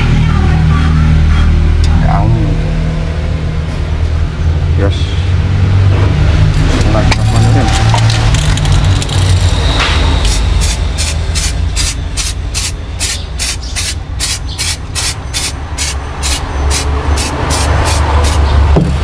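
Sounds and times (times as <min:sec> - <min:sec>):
aerosol can spraying bursts: 0:10.3 - 0:18.4.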